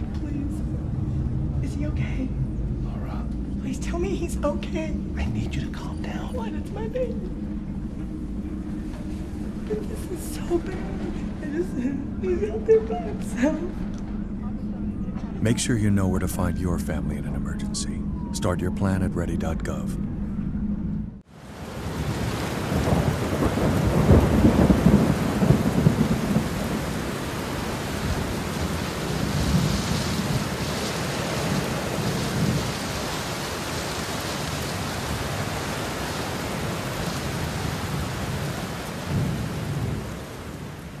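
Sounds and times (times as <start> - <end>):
rushing noise with deep rumbles: 19.5 - 41.0.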